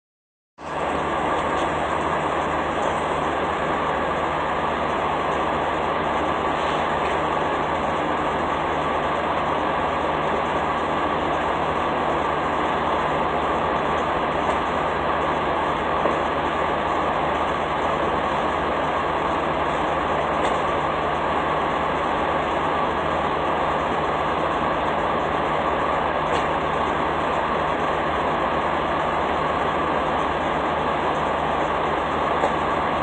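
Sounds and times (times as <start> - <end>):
diesel engine idling: 0.6 - 33.0.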